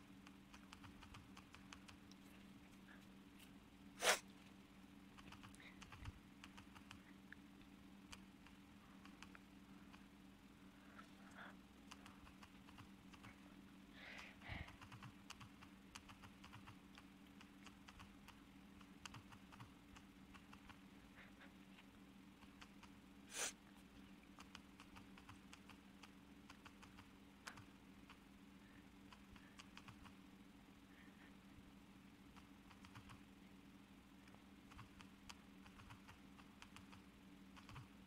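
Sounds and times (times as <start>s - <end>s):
low steady hum: 0.0s - 38.0s
rapid typing clicks: 0.5s - 2.0s, 5.2s - 7.0s, 11.9s - 13.3s, 14.7s - 16.8s, 17.4s - 20.8s, 24.4s - 27.7s, 29.1s - 30.1s, 32.7s - 33.2s, 34.7s - 37.0s, 37.6s - 37.9s
short hiss-like burst: 4.0s - 4.2s.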